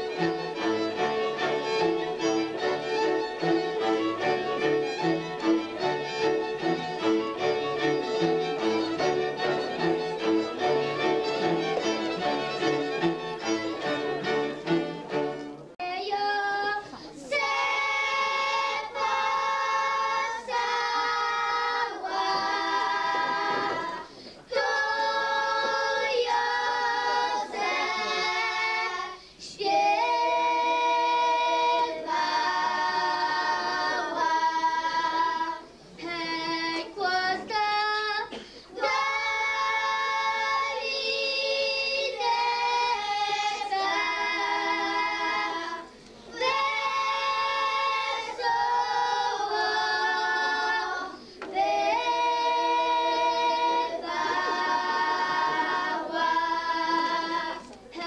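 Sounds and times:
fiddles and cello playing: 0.0 - 15.8, 22.0 - 29.2, 38.8 - 57.4
girls singing unaccompanied: 0.0 - 58.0.

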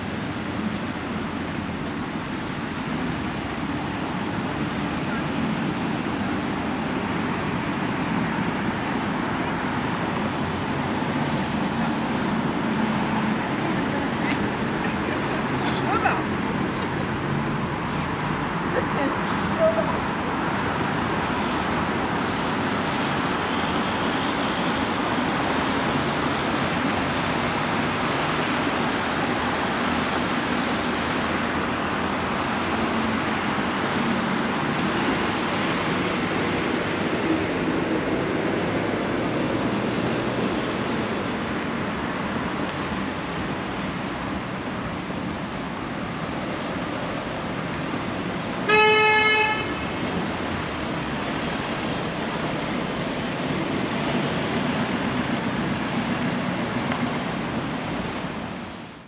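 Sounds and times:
city street traffic: 0.0 - 59.0
vehicle horn toot: 48.7 - 49.8.

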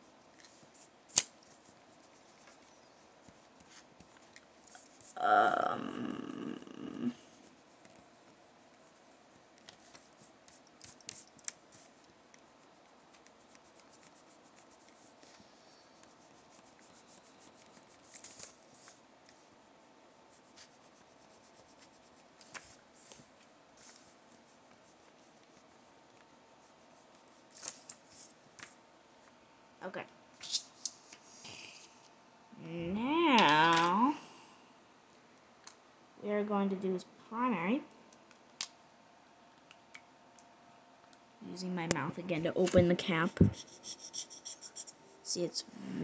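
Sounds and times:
eraser rubbing on paper: 8.6 - 19.0, 20.3 - 28.4, 42.8 - 45.0.

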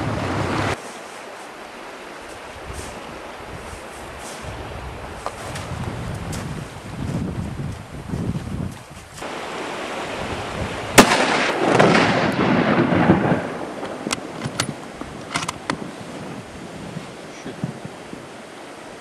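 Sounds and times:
rifle shot with echo: 11.0 - 13.6.

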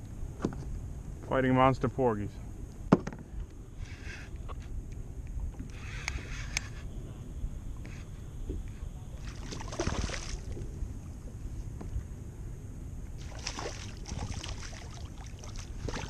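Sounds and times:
water against kayak hull: 2.9 - 12.2, 13.0 - 16.0
fish splashing at surface: 9.2 - 10.6, 13.2 - 16.0.

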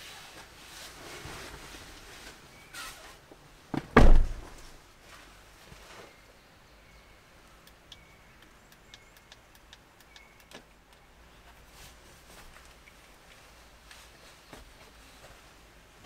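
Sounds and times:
faint light clicks: 7.4 - 11.1.

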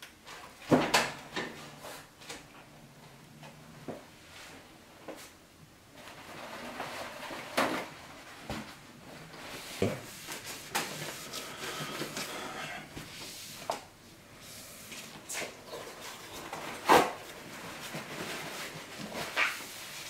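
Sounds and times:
paper towel wiping wooden table: 9.5 - 13.7.

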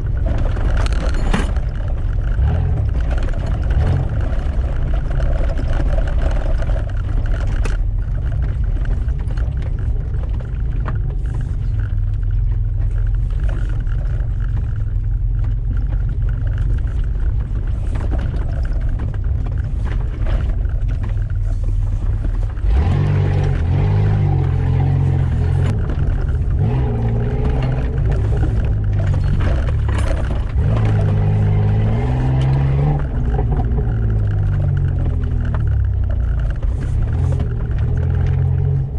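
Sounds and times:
vehicle engine rumble: 0.0 - 38.9.

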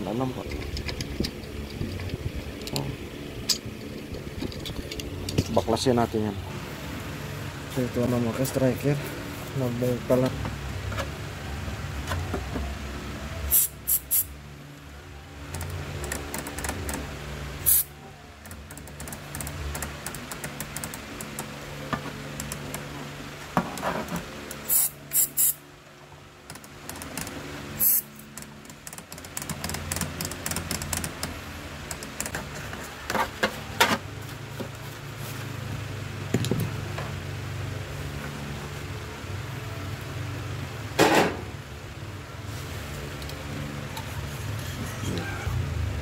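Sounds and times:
steady low hum: 0.0 - 46.0
aerosol spray can hissing: 13.5 - 14.3, 17.6 - 17.9, 24.7 - 25.6, 27.8 - 28.1.

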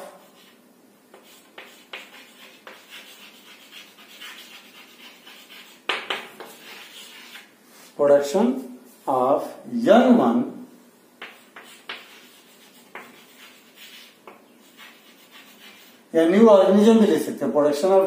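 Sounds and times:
chalk scratching on chalkboard: 0.1 - 8.0, 11.2 - 16.0.

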